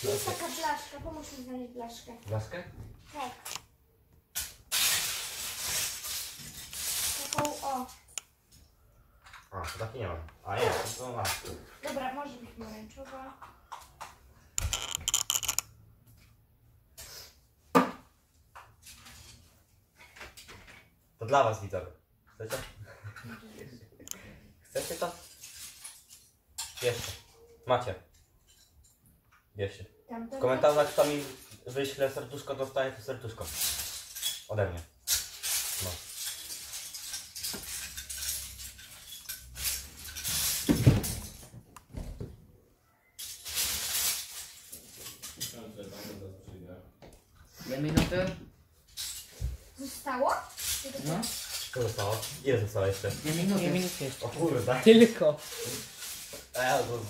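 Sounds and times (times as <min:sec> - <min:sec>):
plastic bricks clicking and clattering: 0:14.6 - 0:15.7.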